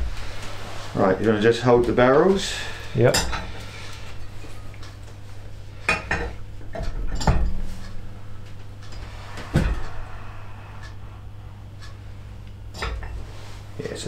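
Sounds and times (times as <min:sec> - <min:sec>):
low hum: 0:00.0 - 0:13.8
metal clinks and knocks: 0:06.0 - 0:08.1.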